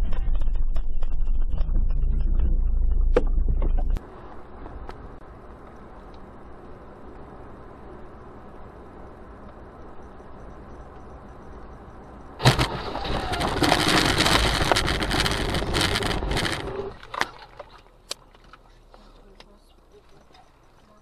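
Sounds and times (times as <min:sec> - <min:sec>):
car road noise: 0:00.0 - 0:21.0
loud crash bang: 0:12.4 - 0:16.4
debris pelting car: 0:12.4 - 0:17.8.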